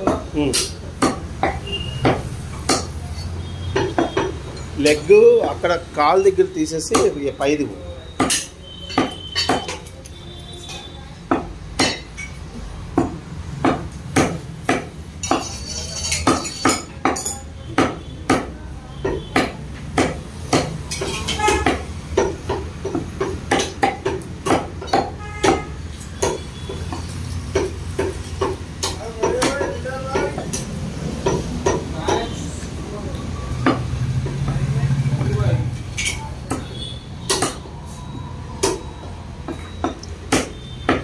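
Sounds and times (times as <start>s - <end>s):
meat cleaver chopping on wood block: 40.3s - 41.0s.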